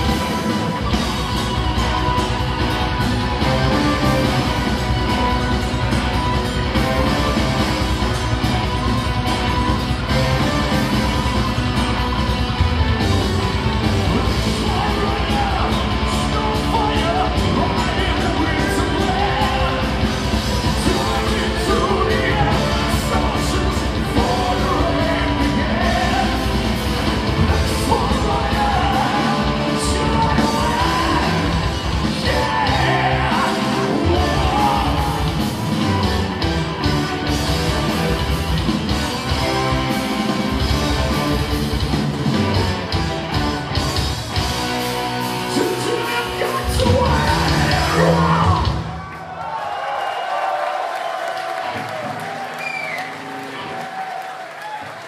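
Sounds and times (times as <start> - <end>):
metal band playing live: 0.0 - 49.1
lead singer vocals: 14.2 - 26.6, 27.4 - 35.5, 45.5 - 49.0.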